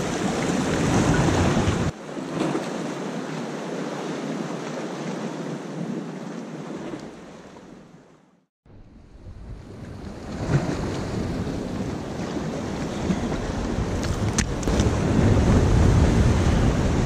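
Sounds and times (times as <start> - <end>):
surf washing against rocks: 0.0 - 7.6, 9.8 - 17.0
wind buffeting microphone: 8.8 - 17.0.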